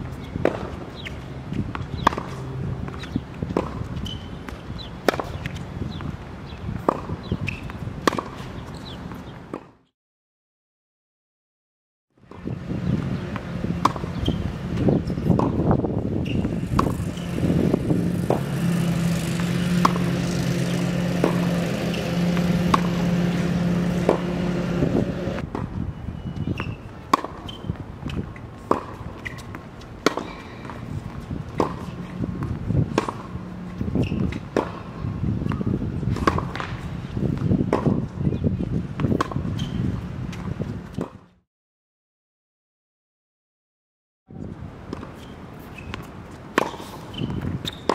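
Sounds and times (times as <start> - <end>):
tennis ball bounce: 0.4 - 6.1, 6.8 - 9.7, 12.3 - 15.8, 16.5 - 25.7, 26.6 - 38.2, 39.0 - 39.7, 44.9 - 47.9
tennis ball struck by racket: 0.4 - 6.1, 6.8 - 9.8, 13.3 - 25.7, 26.6 - 38.2, 39.0 - 41.2, 44.9 - 47.9
low motor hum: 16.5 - 25.4.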